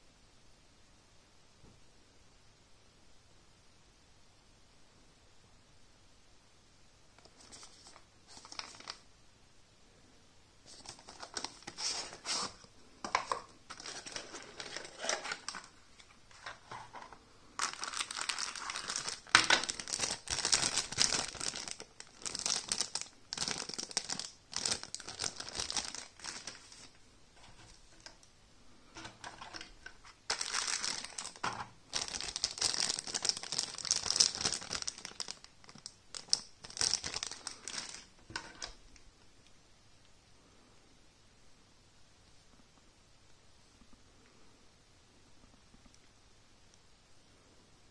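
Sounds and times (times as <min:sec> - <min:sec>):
plastic bags crinkling: 0:07.2 - 0:09.0, 0:10.7 - 0:28.2, 0:29.0 - 0:38.8.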